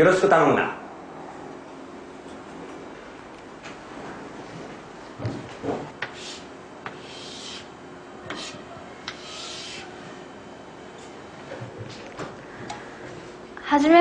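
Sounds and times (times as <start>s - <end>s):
scraping across hard surface: 6.1s - 7.7s, 8.3s - 9.9s.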